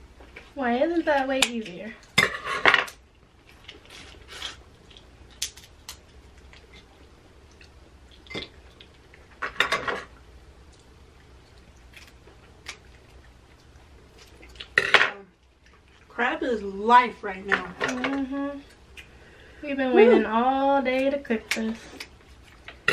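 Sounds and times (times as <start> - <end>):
crab shells cracking: 2.9 - 6.9, 11.8 - 14.9.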